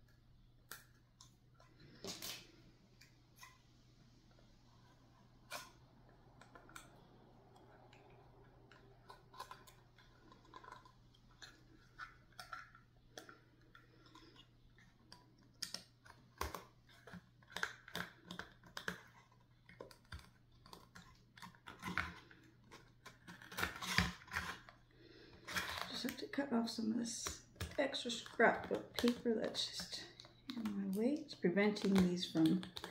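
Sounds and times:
low steady hum: 0.0 - 32.9.

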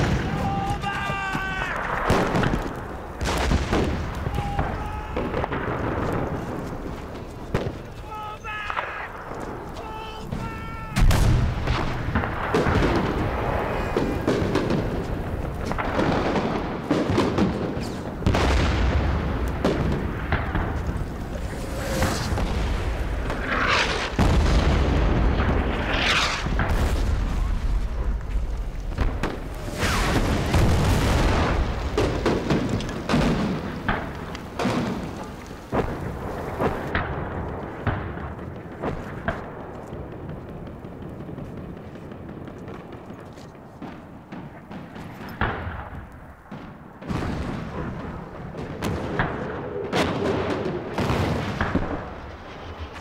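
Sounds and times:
gunshots cracking: 0.0 - 27.8, 28.9 - 43.2
heavy shell explosions: 0.0 - 53.0.

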